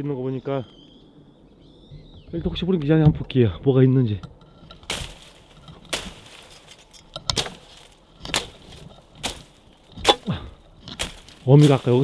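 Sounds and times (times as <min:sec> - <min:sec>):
rustling of brush: 0:04.3 - 0:12.0
saw chopping dry weeds: 0:04.6 - 0:12.0.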